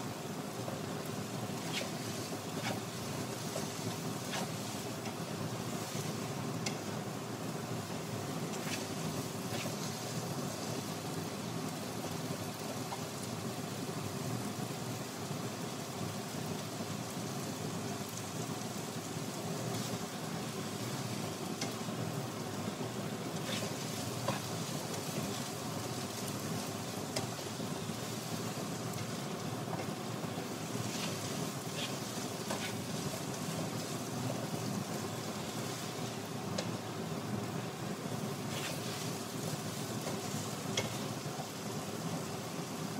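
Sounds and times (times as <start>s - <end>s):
potatoes sizzling in a pan: 0.0s - 42.9s.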